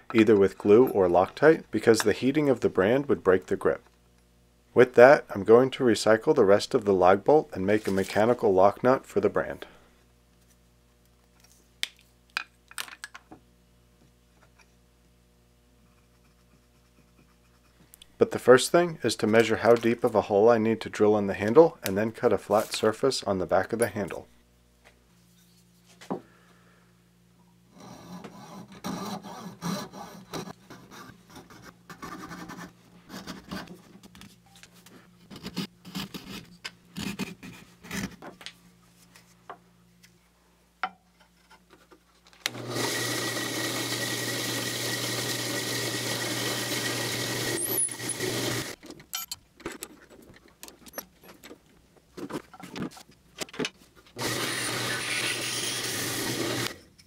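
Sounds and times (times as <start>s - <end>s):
coping saw cutting wood: 42.5s - 48.8s, 54.2s - 56.8s
drill press boring: 42.5s - 48.8s, 54.2s - 56.8s.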